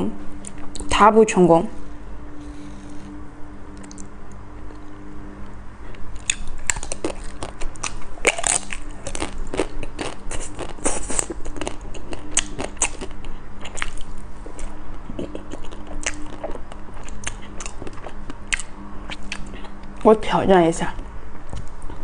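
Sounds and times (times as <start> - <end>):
chewing: 5.9 - 20.0
crunching bites into ice cream bar: 6.2 - 14.1.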